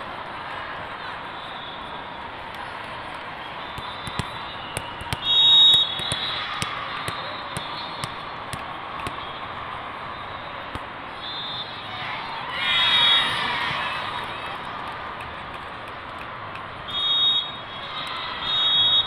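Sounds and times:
crowd murmur in sports hall: 0.0s - 19.0s
referee's whistle: 1.3s - 2.0s, 3.6s - 8.3s, 9.1s - 11.9s, 16.9s - 19.0s
volleyballs being struck: 3.8s - 9.3s.

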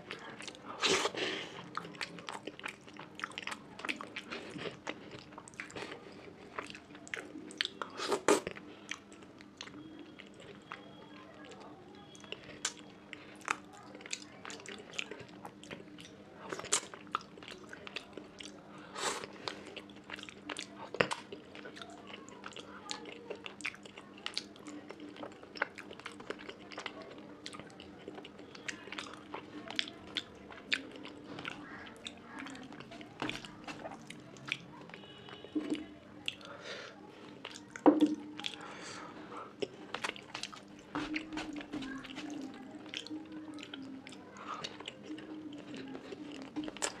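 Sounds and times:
wet chewing and lip smacks: 12.2s - 18.6s, 19.2s - 36.5s, 37.4s - 38.6s, 39.6s - 47.0s.

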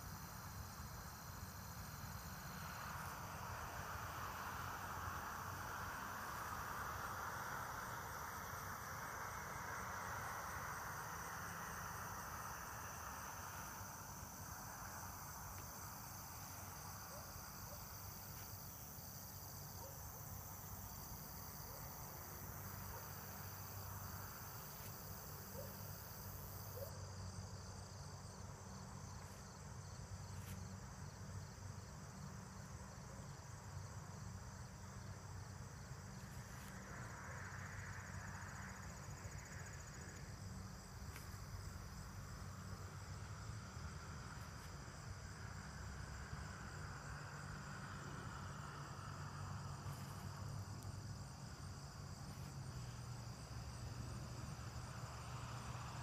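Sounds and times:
crickets and insects trilling: 0.0s - 56.0s.

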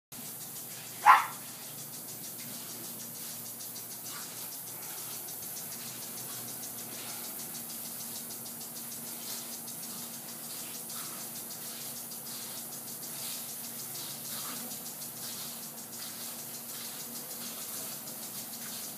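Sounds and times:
puppy barking: 1.0s - 1.4s.

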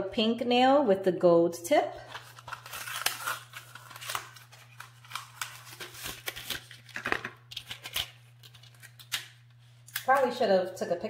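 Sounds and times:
low electrical hum: 0.0s - 11.0s
packaging clicks and rustles: 2.1s - 9.3s.

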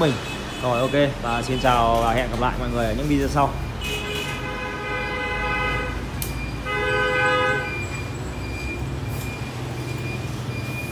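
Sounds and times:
low traffic hum: 0.0s - 10.9s
vehicle horn honking: 3.8s - 6.0s, 6.6s - 7.8s.

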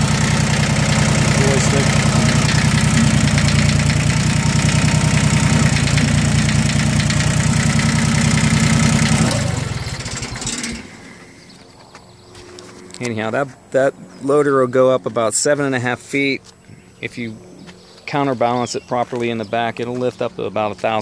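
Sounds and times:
tractor diesel engine running: 0.0s - 11.9s.

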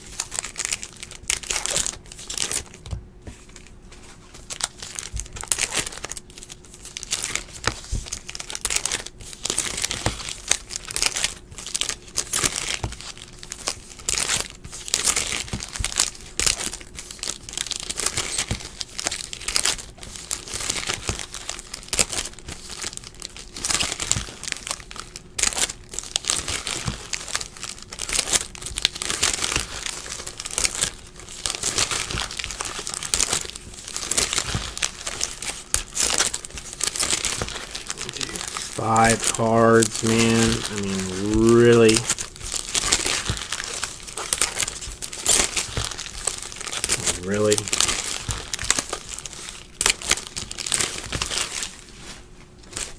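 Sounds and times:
foil wrappers crinkling and tearing: 0.0s - 52.9s.

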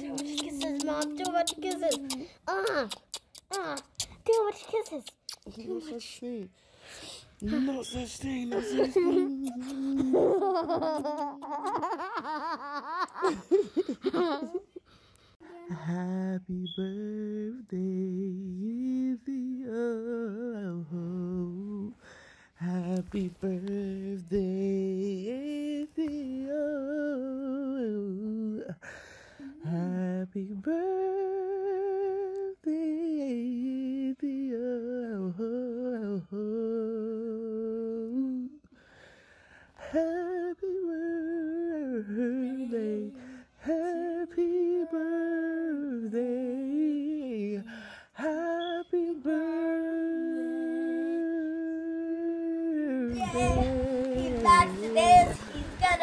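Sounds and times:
woman humming: 0.0s - 4.0s, 8.5s - 12.0s.

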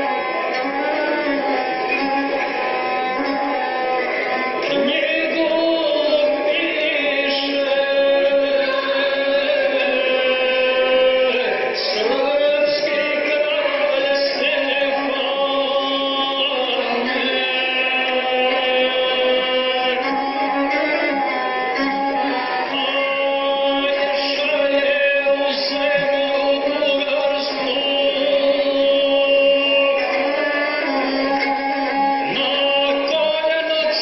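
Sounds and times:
bowed fiddle melody: 0.0s - 34.0s
chant-like singing: 4.6s - 21.2s.

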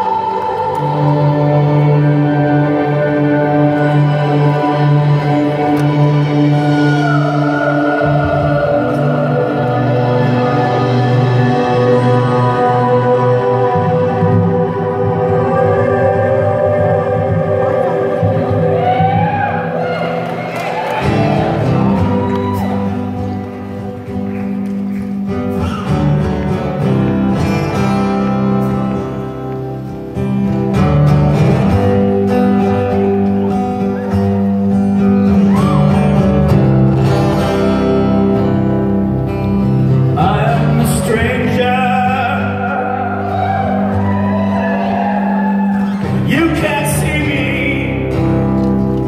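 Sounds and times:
live band playing slow song: 0.0s - 49.0s
man singing: 40.1s - 43.9s, 46.1s - 48.6s.

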